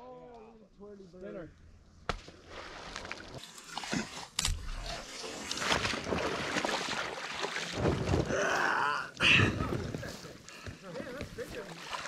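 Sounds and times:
wading through pond water: 2.4 - 12.0.

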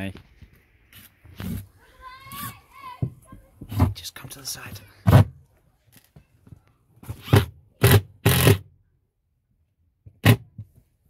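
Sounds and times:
cordless impact driver bursts: 7.2 - 8.6.

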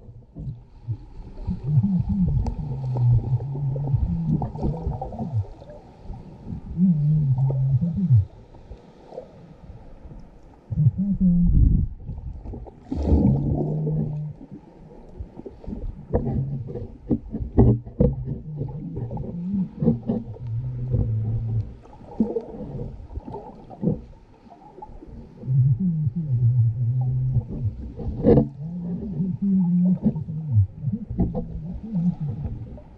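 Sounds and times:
low held tones: 0.0 - 5.7, 6.5 - 8.4, 10.7 - 12.2, 18.2 - 21.8, 25.3 - 32.9
deep rumble: 0.0 - 5.8, 6.4 - 8.5, 10.7 - 14.5, 15.9 - 24.1, 25.2 - 32.9.

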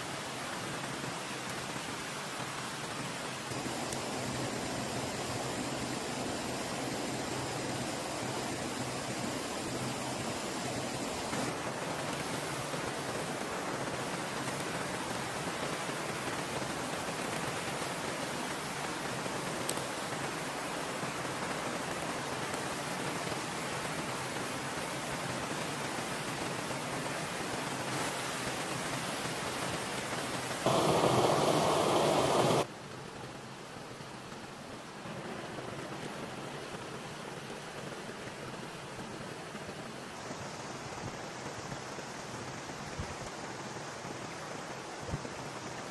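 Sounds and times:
waterfall and stream rushing: 0.0 - 32.7.

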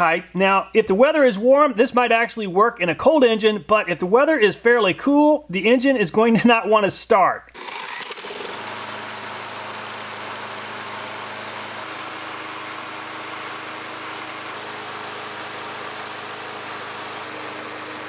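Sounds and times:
lawn mower engine running: 7.6 - 18.0.

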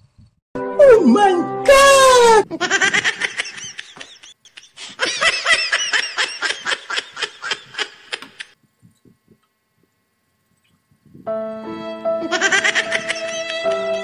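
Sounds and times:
high-pitched giggling laugh: 2.4 - 8.6, 12.2 - 13.9.

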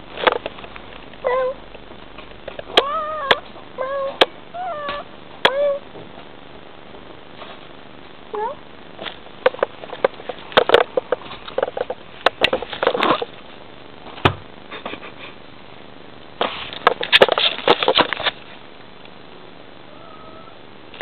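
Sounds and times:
rustling: 16.4 - 18.7
cat rising chirp: 19.9 - 20.6.

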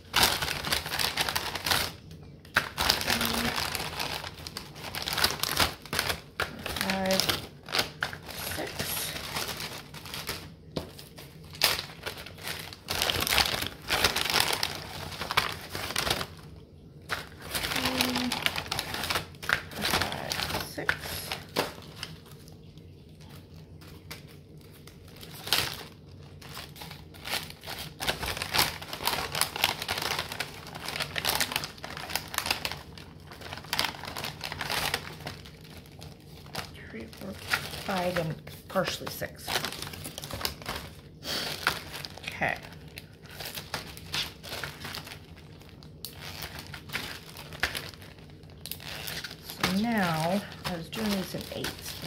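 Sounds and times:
plastic bag crinkling: 0.0 - 52.0.

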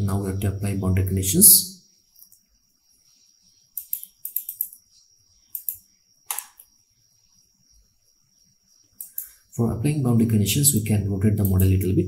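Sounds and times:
mouse click: 5.5 - 6.7
computer keyboard clicking: 9.0 - 9.3.

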